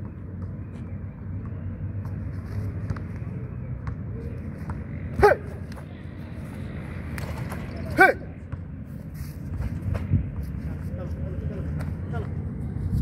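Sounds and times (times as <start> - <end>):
person shouting: 5.2 - 5.6, 7.9 - 8.3.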